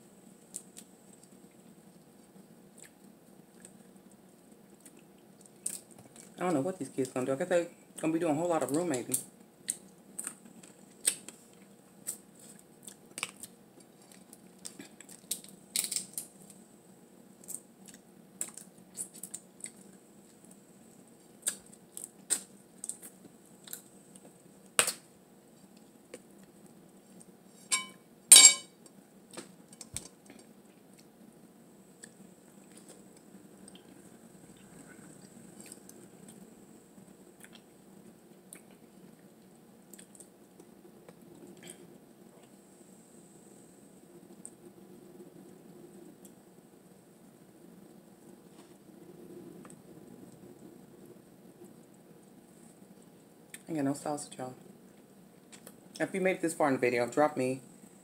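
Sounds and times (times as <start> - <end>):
crab shells cracking: 9.6 - 11.4, 13.0 - 16.6, 24.7 - 25.1.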